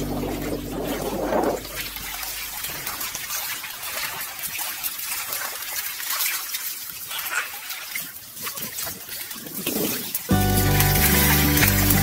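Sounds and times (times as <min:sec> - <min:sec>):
fish thrashing at water surface: 0:00.0 - 0:12.0
shallow water splashing: 0:00.0 - 0:12.0
background music: 0:10.3 - 0:12.0.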